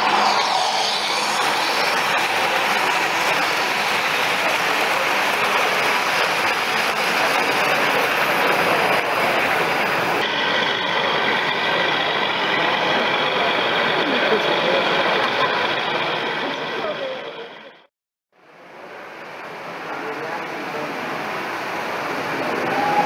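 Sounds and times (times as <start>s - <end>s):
model train wheels rumbling: 0.0s - 17.2s
exhibition hall noise: 0.0s - 17.7s, 18.4s - 23.0s.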